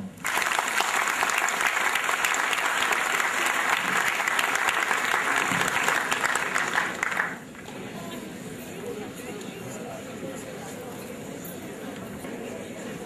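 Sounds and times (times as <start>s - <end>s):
audience applauding: 0.1s - 7.5s.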